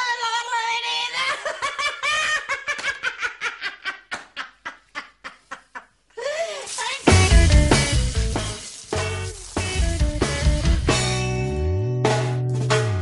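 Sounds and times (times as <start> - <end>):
woman laughing: 1.0 - 7.1.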